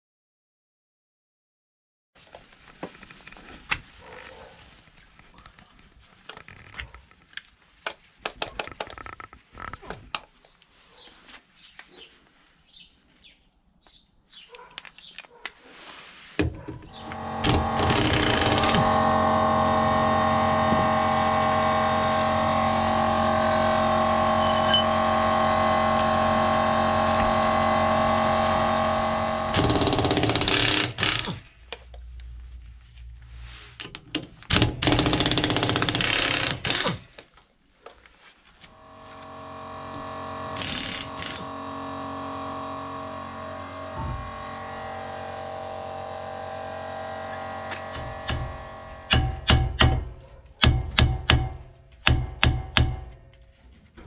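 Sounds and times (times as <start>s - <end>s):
pneumatic impact wrench rattling: 16.4s - 31.6s, 33.8s - 37.2s, 39.2s - 53.1s
loud steady machine running: 16.9s - 31.4s, 38.7s - 50.0s.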